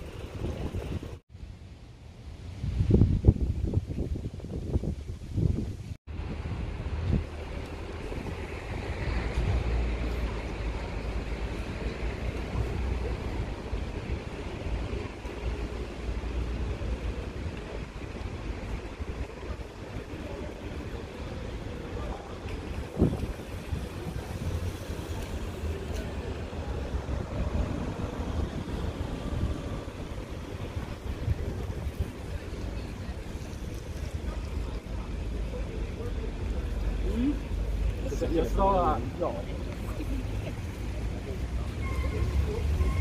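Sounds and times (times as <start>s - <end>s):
wind buffeting microphone: 0.0s - 1.2s, 2.5s - 14.6s, 16.8s - 34.9s
faint outdoor background noise: 0.0s - 43.0s
outdoor background hiss: 1.3s - 11.9s.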